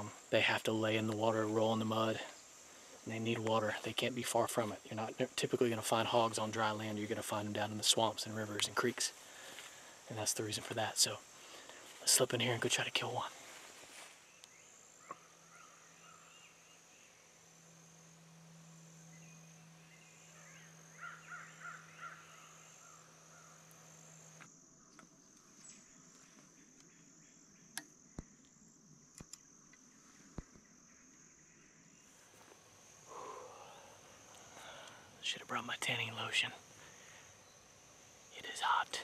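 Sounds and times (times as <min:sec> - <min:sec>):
bird calls: 0:00.0 - 0:28.5, 0:29.3 - 0:39.0
high insect trill: 0:00.0 - 0:39.0
sharp clicks: 0:29.1 - 0:29.8.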